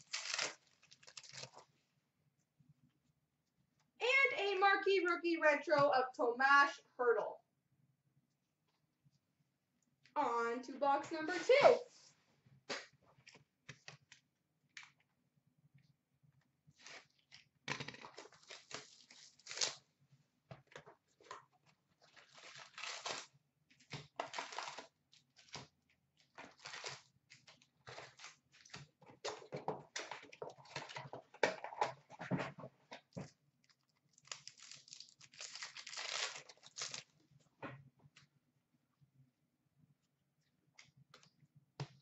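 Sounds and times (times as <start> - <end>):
card packs crinkling and ripping: 0.0 - 1.7, 16.8 - 19.8, 22.0 - 25.7, 26.4 - 29.0, 33.8 - 37.1.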